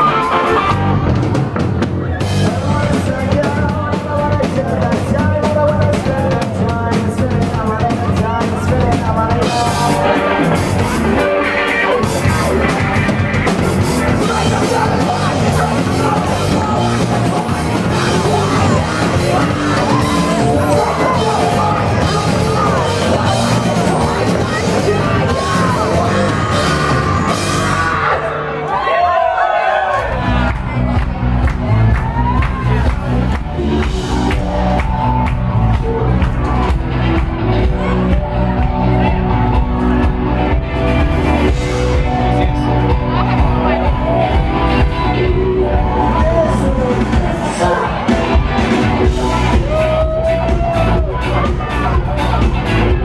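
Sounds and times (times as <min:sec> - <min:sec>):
drum kit: 0:00.0 - 0:28.2, 0:30.0 - 0:53.0
electric guitar: 0:00.0 - 0:28.6
bass guitar: 0:00.0 - 0:53.0
person singing: 0:02.2 - 0:28.2, 0:41.4 - 0:53.0.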